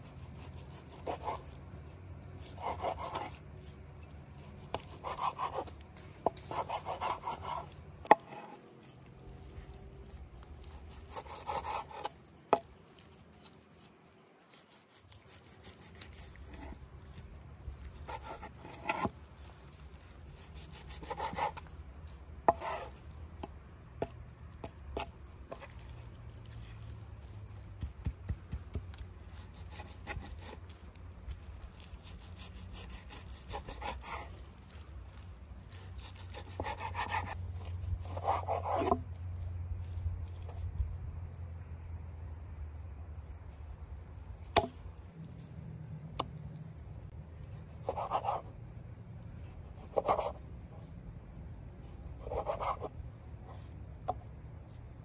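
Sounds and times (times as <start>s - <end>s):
knife slicing meat: 6.4s - 13.8s, 14.5s - 23.6s, 28.0s - 39.0s.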